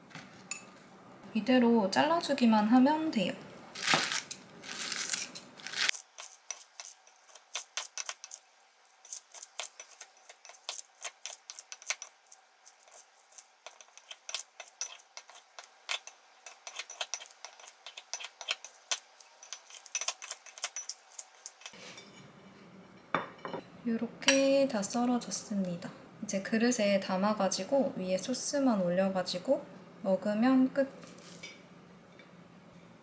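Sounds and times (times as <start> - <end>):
scissors snipping salad: 3.8 - 8.4, 9.0 - 21.7.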